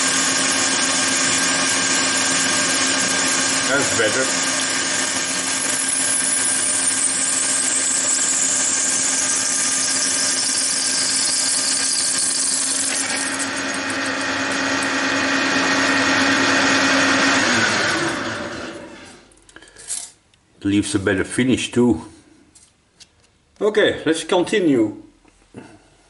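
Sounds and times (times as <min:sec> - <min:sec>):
metal lathe cutting with whine: 0:00.0 - 0:19.1
lathe spindle running down: 0:00.0 - 0:19.2.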